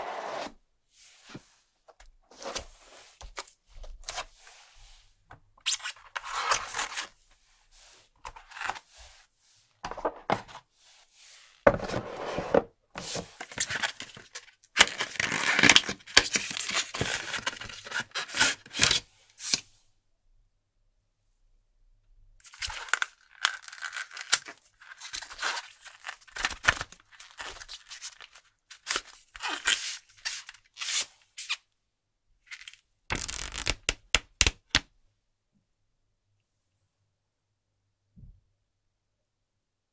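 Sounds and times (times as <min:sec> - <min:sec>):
cardboard packaging torn open: 0:13.6 - 0:19.0, 0:22.5 - 0:31.0.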